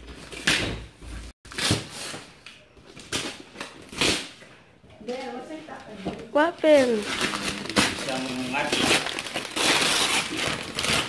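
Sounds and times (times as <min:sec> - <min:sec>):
wrapping paper tearing: 0:06.8 - 0:11.0.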